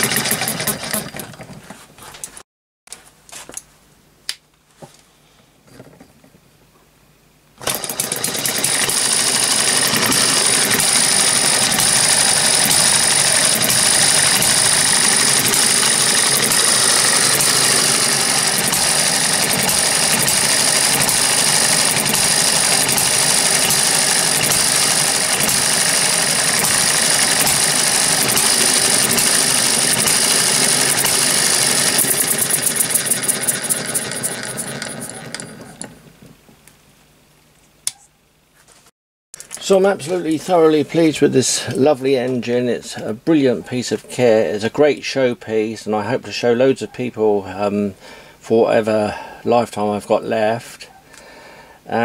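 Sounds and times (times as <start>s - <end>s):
flywheel spun by hand: 0.0s - 1.6s, 7.6s - 36.0s
model engine running with rattle: 0.0s - 1.6s, 7.6s - 36.0s.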